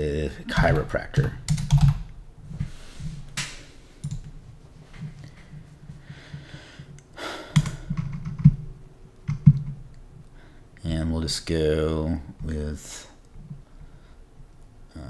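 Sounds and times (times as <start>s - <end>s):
keyboard typing and clicking: 0.7s - 2.1s, 4.0s - 4.3s, 7.5s - 8.6s, 9.2s - 9.9s.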